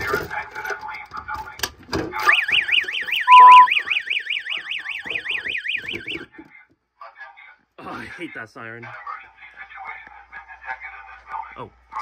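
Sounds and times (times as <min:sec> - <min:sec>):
fire alarm siren warbling: 0:02.2 - 0:06.3
loud steady beep: 0:02.3 - 0:06.2.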